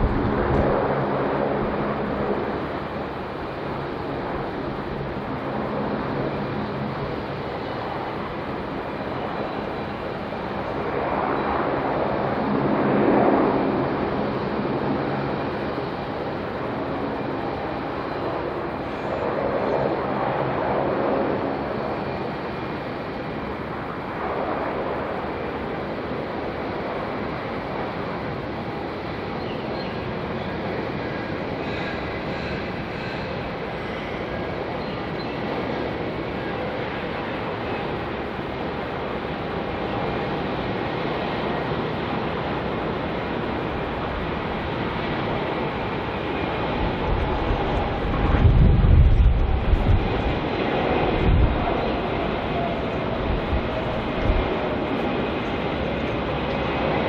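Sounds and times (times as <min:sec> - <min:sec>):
wind on microphone: 0:00.0 - 0:22.8, 0:41.5 - 0:57.0
distant jet engine rush: 0:00.0 - 0:57.0.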